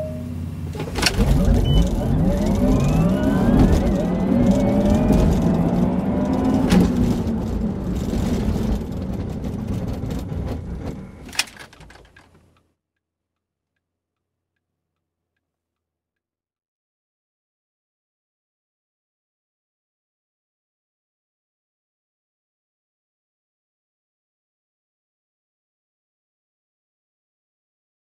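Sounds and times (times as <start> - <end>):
electric car drive whining: 0.0 - 12.5
tyre and road noise: 0.1 - 12.5.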